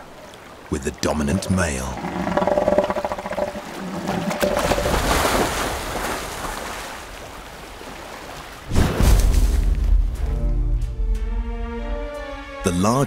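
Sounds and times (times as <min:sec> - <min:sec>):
surf washing and splashing: 0:03.6 - 0:09.7.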